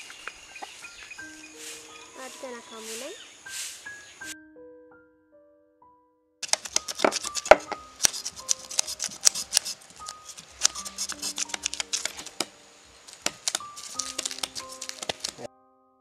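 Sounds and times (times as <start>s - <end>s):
soft background music: 0.0s - 16.0s
knife scraping fish scales: 6.4s - 12.4s.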